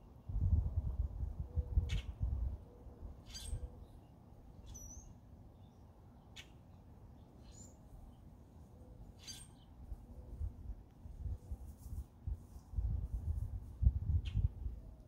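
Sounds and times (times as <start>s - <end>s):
faint bird chirps: 1.5s - 6.6s, 7.2s - 8.2s, 8.8s - 10.5s.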